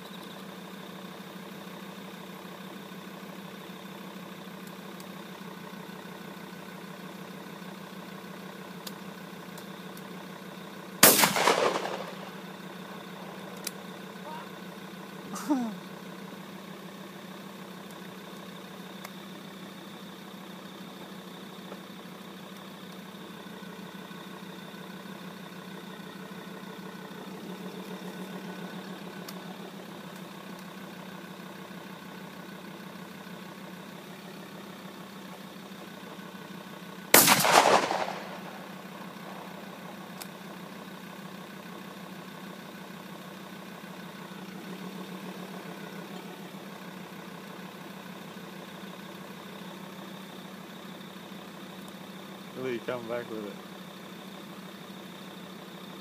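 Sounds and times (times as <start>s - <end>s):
vehicle engine idling: 0.0s - 56.0s
shotgun blast: 11.0s - 13.9s, 37.1s - 40.0s.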